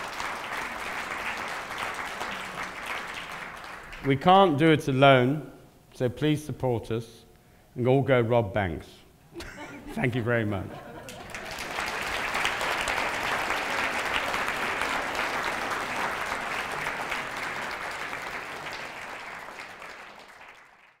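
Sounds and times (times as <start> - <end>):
audience applauding: 0.0 - 4.2, 11.0 - 21.0.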